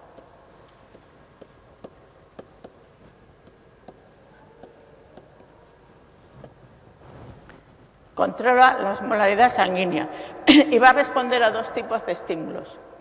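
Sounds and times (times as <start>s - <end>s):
stylus tapping on tablet screen: 0.1s - 5.5s.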